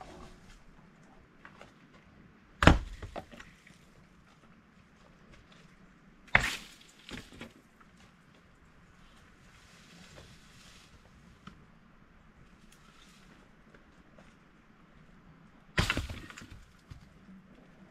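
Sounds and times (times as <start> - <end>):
wooden boards thrown down: 15.8 - 16.7.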